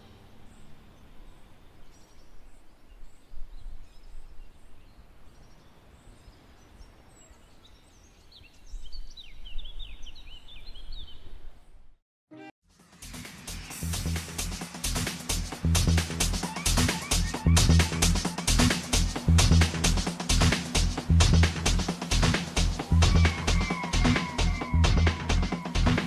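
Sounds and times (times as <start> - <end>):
small birds chirping: 0.0 - 11.8.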